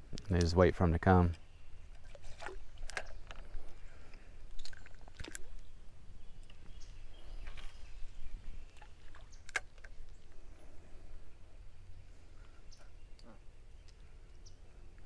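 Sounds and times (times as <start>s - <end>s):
rod and reel clicks and rustles: 1.9s - 5.7s.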